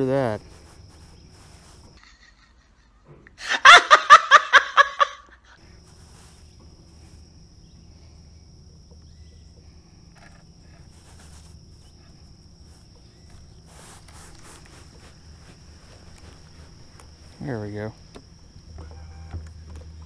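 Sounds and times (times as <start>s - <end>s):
man laughing hysterically: 2.0s - 5.6s
faint low hum: 5.0s - 20.0s.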